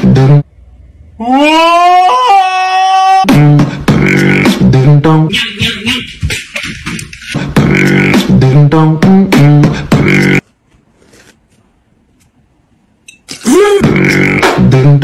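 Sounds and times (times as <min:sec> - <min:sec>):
vocal music with beatboxing: 0:03.3 - 0:10.4, 0:13.3 - 0:15.0.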